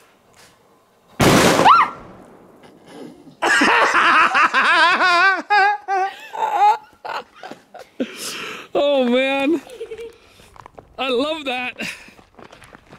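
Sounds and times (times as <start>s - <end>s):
black powder explosion: 1.2s - 2.7s
hearty laughter: 3.2s - 8.5s, 9.5s - 10.2s.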